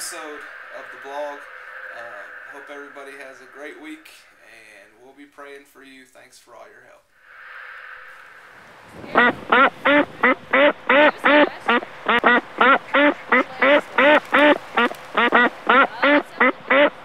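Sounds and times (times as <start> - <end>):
soft steady hiss: 0.0 - 17.0
ducks quacking: 9.0 - 17.0.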